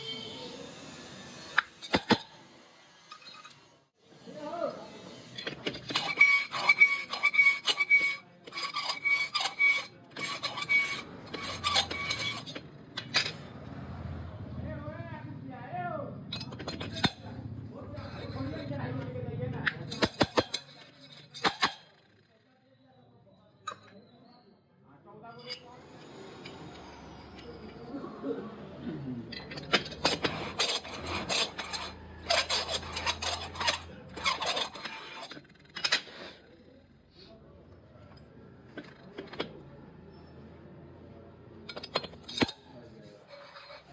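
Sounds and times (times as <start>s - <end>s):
cutter scraping metal: 0.0s - 13.5s, 16.2s - 22.4s, 25.3s - 28.1s, 29.2s - 36.8s, 41.6s - 43.9s
valve seat cutter rasping on metal: 5.3s - 12.6s, 30.0s - 35.4s.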